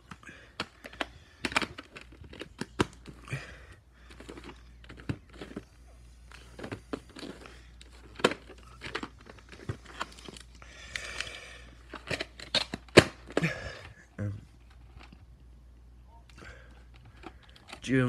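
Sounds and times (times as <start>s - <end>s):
plastic cases clicking and knocking: 0.0s - 3.3s, 4.0s - 5.7s, 6.3s - 14.0s.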